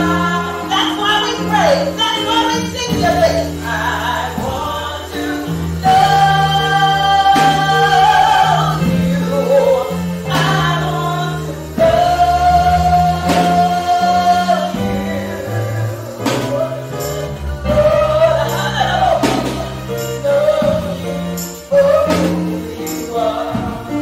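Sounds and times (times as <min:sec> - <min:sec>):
gospel choir singing: 0:00.0 - 0:24.0
sustained bass notes: 0:00.0 - 0:24.0.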